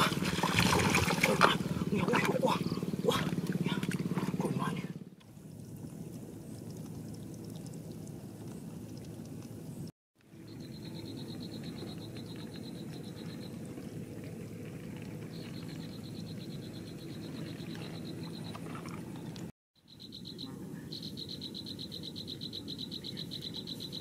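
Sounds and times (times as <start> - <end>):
steady low rumble: 0.0 - 19.5
frogs trilling: 10.4 - 14.0, 15.2 - 19.0, 19.8 - 24.0.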